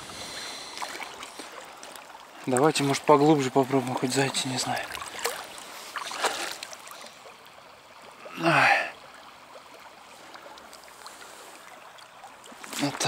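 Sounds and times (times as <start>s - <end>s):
river water trickling: 0.0s - 13.0s
man sighing: 8.3s - 9.0s.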